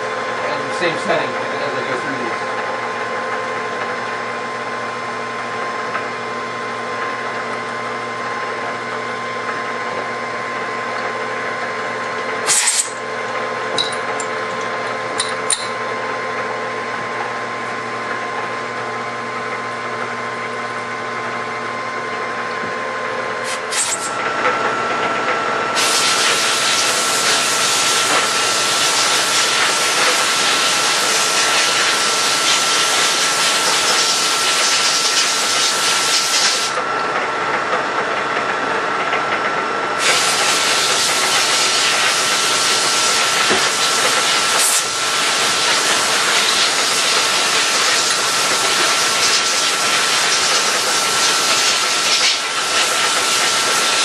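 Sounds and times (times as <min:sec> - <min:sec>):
milling machine spindle drilling: 0:40.0 - 0:54.0.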